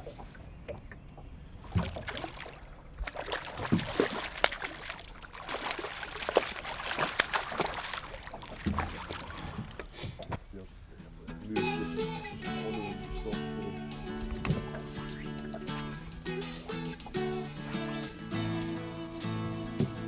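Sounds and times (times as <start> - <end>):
fish splashing at the surface: 1.7 - 9.8.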